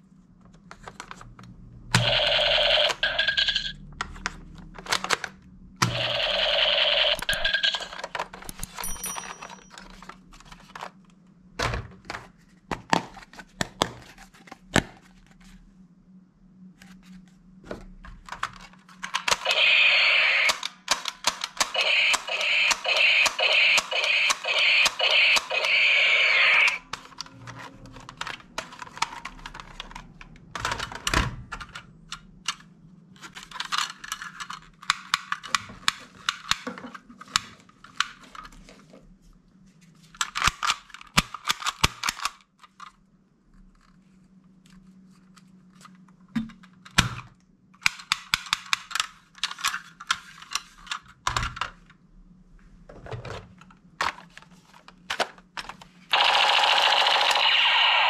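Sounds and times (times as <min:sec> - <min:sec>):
plastic toy guns clicking: 0:19.0 - 0:26.9, 0:40.2 - 0:42.5, 0:47.8 - 0:51.0, 0:56.2 - 0:58.0.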